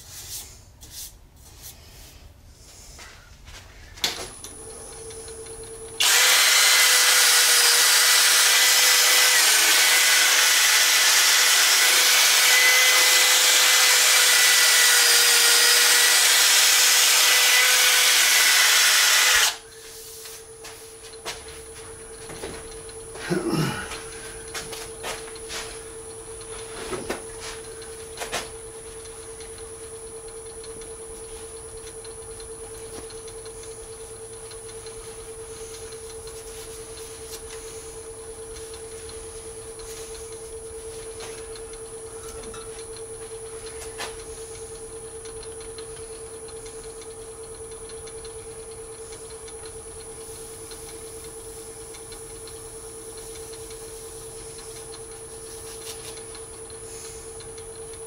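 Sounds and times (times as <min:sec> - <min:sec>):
lathe motor hum: 0:04.5 - 0:23.2.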